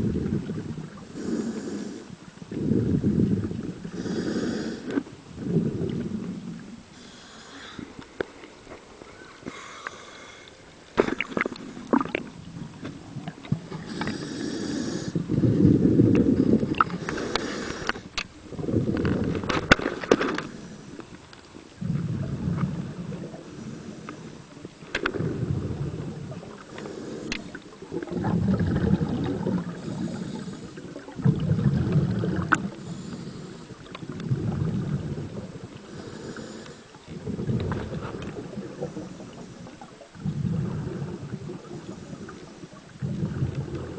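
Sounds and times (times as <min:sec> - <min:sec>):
quiet inhalations: 0:00.0 - 0:11.9, 0:13.6 - 0:19.2, 0:20.3 - 0:28.2, 0:28.8 - 0:43.9
gurgling bubbles from exhalation: 0:11.0 - 0:12.3, 0:18.5 - 0:19.5, 0:21.8 - 0:23.4, 0:25.1 - 0:26.6, 0:27.8 - 0:32.8, 0:33.9 - 0:35.6, 0:37.1 - 0:43.9.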